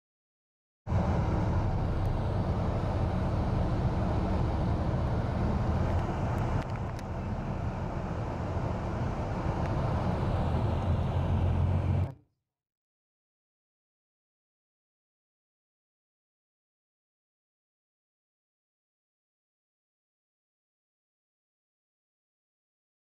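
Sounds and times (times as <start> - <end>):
bus engine and road noise: 0.9 - 12.2.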